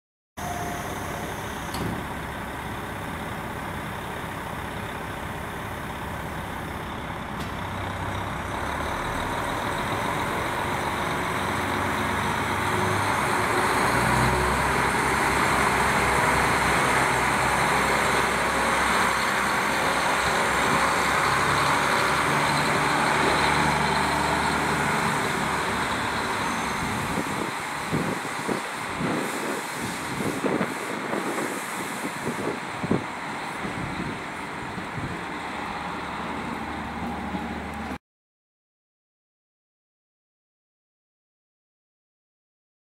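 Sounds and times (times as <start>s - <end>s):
diesel railcar engine: 0.4s - 38.0s.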